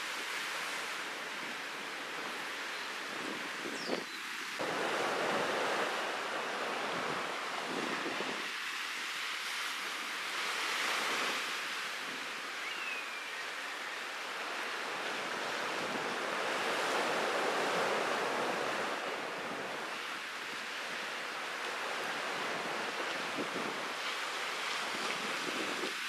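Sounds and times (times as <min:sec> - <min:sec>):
rush of waves: 0:00.0 - 0:26.0
wind blowing over microphone: 0:03.0 - 0:09.1, 0:21.9 - 0:24.0, 0:24.7 - 0:26.0.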